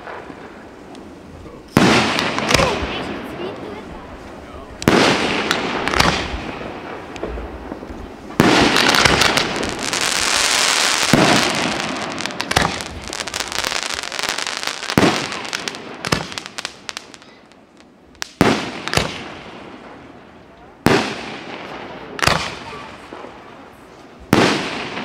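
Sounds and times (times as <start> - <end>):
firework crackling: 0.0 - 25.0
firework shells bursting: 4.8 - 20.0.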